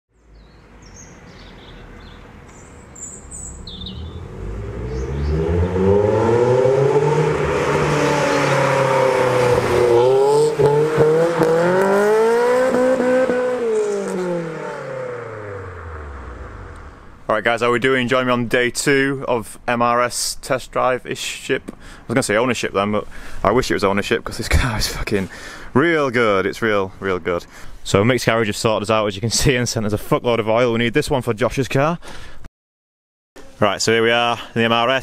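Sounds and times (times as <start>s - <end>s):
birds chirping faintly: 0.1s - 5.8s
sports car engine revving: 0.4s - 17.3s.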